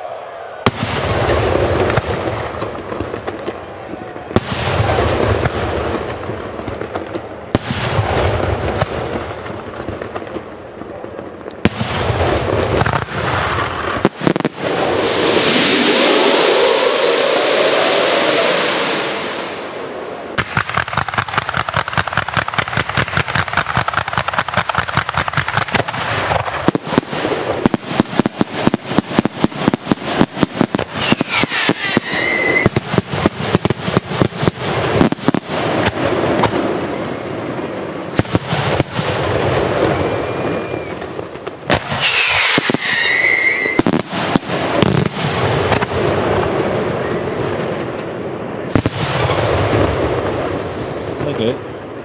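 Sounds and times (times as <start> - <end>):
fireworks bangs: 0.0 - 52.0
fireworks crackling: 0.1 - 52.0
fireworks whistles: 12.9 - 23.4, 25.4 - 34.3, 35.0 - 45.4.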